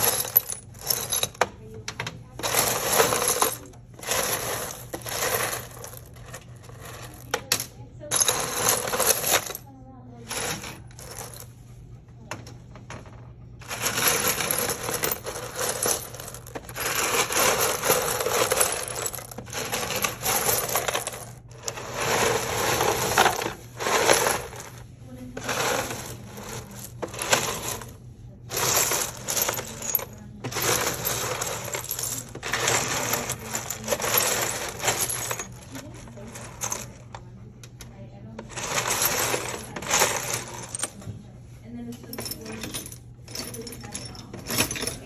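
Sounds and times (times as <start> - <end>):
ceramic shards clinking and rattling: 0.0 - 1.5, 2.4 - 9.6, 13.6 - 24.8, 28.5 - 37.0, 42.0 - 45.0.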